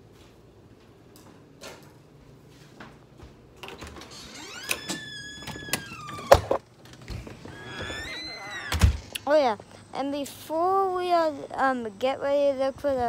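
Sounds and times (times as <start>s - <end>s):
door squealing: 4.0s - 9.2s.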